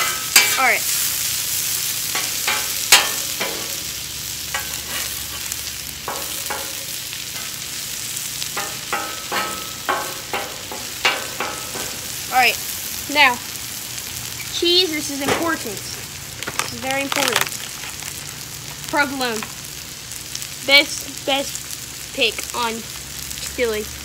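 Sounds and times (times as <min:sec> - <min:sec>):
metal spatula scraping and tapping: 0:00.0 - 0:00.7, 0:02.1 - 0:03.9, 0:04.5 - 0:05.5, 0:06.1 - 0:07.6, 0:08.5 - 0:12.1
meat and onions sizzling on griddle: 0:00.0 - 0:24.0.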